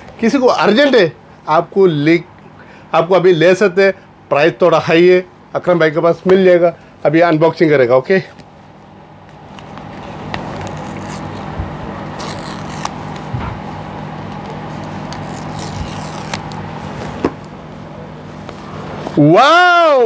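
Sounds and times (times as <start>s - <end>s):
steady low hum: 0.0s - 20.0s
paper tear strips pulled off: 10.4s - 13.3s, 14.9s - 16.7s.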